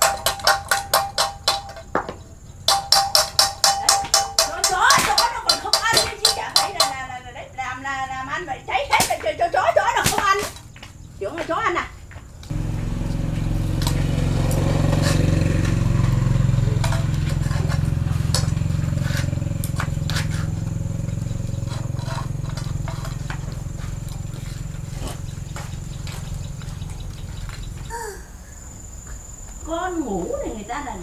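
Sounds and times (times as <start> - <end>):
motor running steadily: 12.5 - 27.9.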